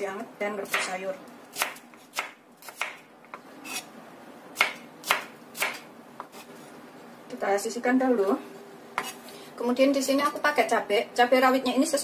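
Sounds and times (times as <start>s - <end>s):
knife slicing on cutting board: 3.6s - 3.9s, 4.6s - 6.6s, 9.0s - 9.3s.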